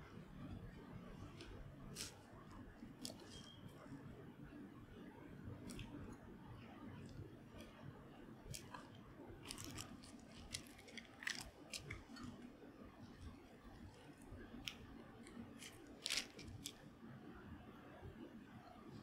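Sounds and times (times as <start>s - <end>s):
plastic film crinkling: 1.2s - 2.3s, 9.4s - 12.5s, 13.9s - 16.8s.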